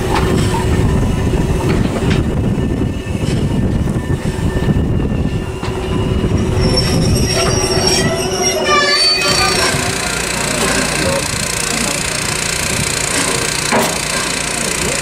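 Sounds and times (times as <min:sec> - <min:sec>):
constant hum: 0:00.0 - 0:15.0
wheels rumbling on rail: 0:00.0 - 0:15.0
high-pitched wheel squeal: 0:02.5 - 0:12.5.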